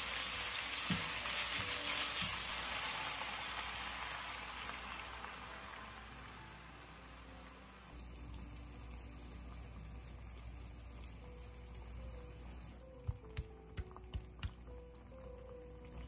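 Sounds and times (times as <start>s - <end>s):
faint watery hiss in hot pan: 0.0s - 13.0s.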